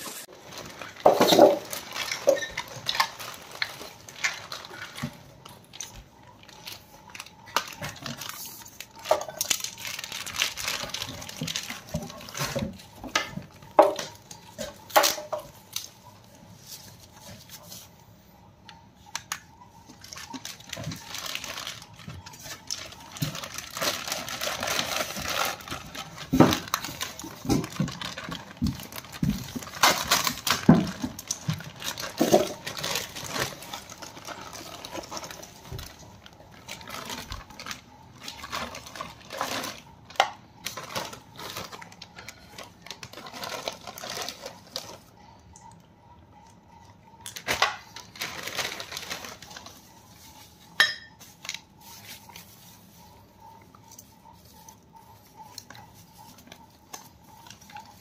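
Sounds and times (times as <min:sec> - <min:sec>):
plastic wrap crinkling and tearing: 0:00.1 - 0:18.0, 0:19.1 - 0:45.1, 0:47.2 - 0:58.0
cardboard rustling and knocking: 0:00.9 - 0:02.4, 0:26.2 - 0:32.8.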